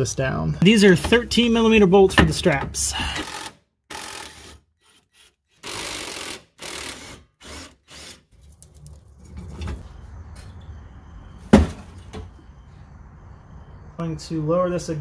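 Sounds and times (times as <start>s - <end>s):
cordless power tool spinning bolts: 3.2s - 8.2s.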